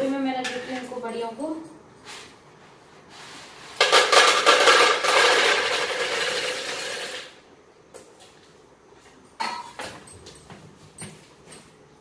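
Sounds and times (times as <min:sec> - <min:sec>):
dry pieces rattling into container: 0:03.8 - 0:07.3.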